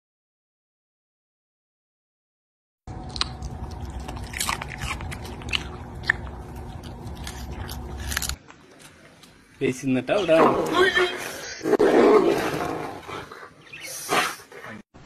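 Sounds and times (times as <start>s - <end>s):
dog chewing a carrot: 2.9s - 9.4s
low steady hum: 2.9s - 9.6s.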